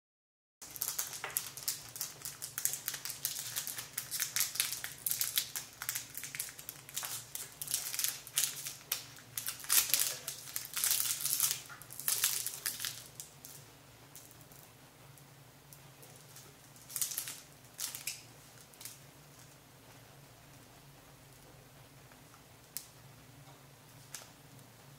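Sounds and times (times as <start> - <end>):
plastic bags crinkling: 0.6 - 13.6, 16.0 - 19.6.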